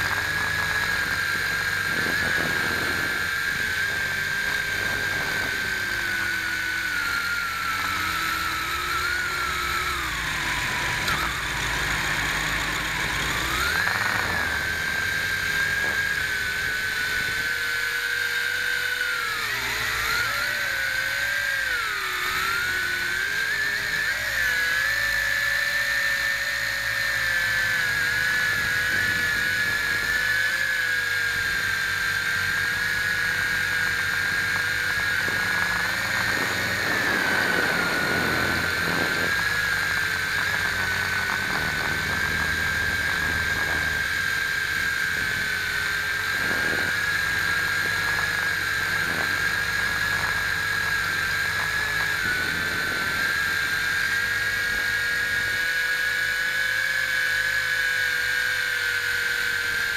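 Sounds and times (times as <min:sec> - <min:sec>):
drone motors whining: 0:00.0 - 0:59.9.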